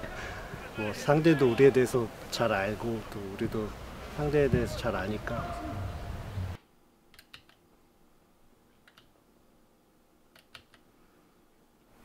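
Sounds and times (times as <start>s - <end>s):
outdoor background noise: 0.0s - 12.0s
computer keyboard clicks: 7.1s - 7.6s, 8.8s - 9.1s, 10.3s - 10.8s.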